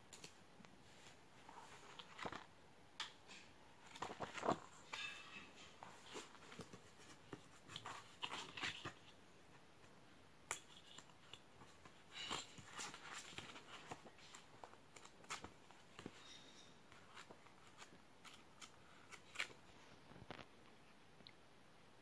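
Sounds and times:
photobook pages turning: 1.0 - 2.5, 3.3 - 9.2, 10.5 - 20.5.

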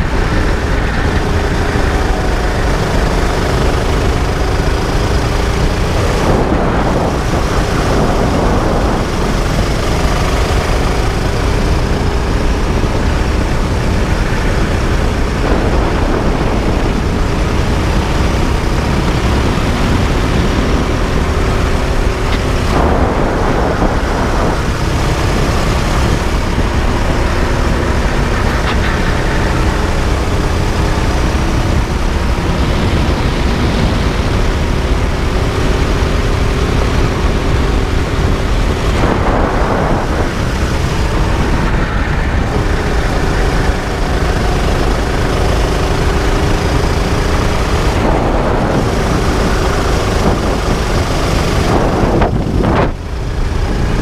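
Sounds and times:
kart engine racing: 0.0 - 54.0
wind rumble on camera: 0.0 - 54.0.

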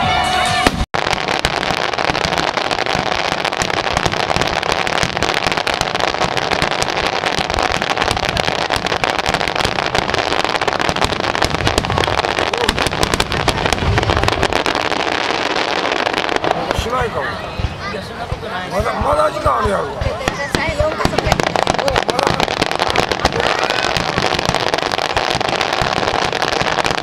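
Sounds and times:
firework shells bursting: 0.7 - 16.5.

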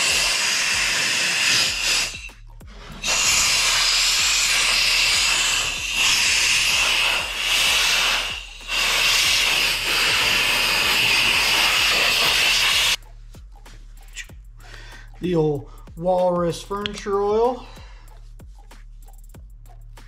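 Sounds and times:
compressed air blow gun hissing: 0.0 - 13.0.

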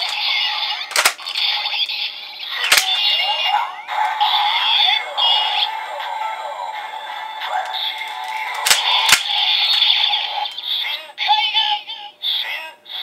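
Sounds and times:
toy lever clicks: 0.0 - 0.2, 0.9 - 1.5, 2.6 - 3.1, 8.0 - 9.9
electronic toy music: 2.6 - 10.7.

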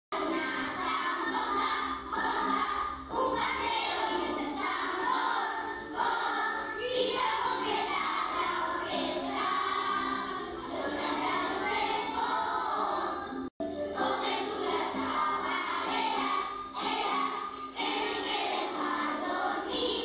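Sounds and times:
choir singing with music: 0.2 - 20.0.

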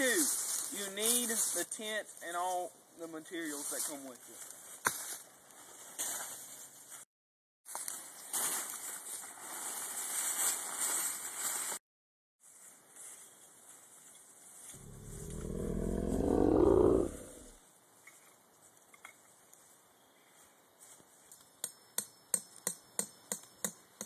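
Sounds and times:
tent fabric rustling on leaves: 0.0 - 2.0, 3.4 - 7.1, 7.7 - 11.8, 12.4 - 15.2
low rumble: 14.8 - 17.6.

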